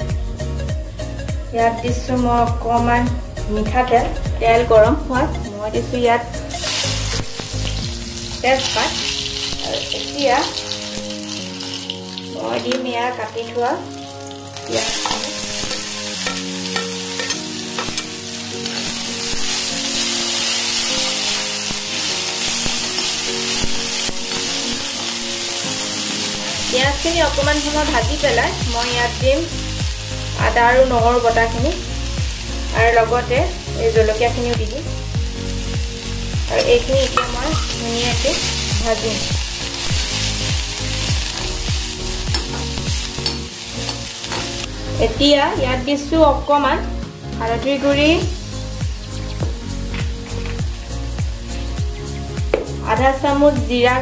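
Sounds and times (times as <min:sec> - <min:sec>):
background music with low beat: 0:00.0 - 0:12.9, 0:20.9 - 0:54.0
onions sizzling in oil: 0:04.5 - 0:54.0
metal spatula stirring: 0:14.9 - 0:28.0, 0:42.3 - 0:44.7
spatula clinking against pan: 0:15.0 - 0:18.1.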